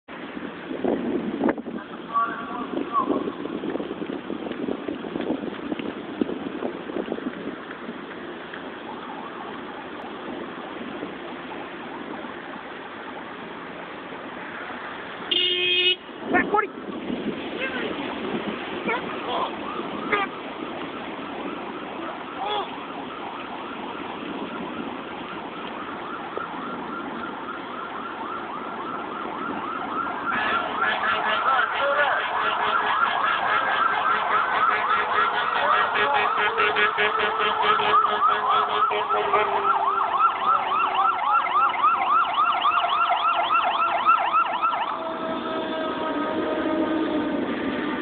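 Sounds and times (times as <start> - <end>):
traffic noise: 0.0 - 48.0
emergency siren yelping: 8.7 - 12.5, 16.5 - 48.0
second louder siren: 8.8 - 12.4, 16.8 - 48.0.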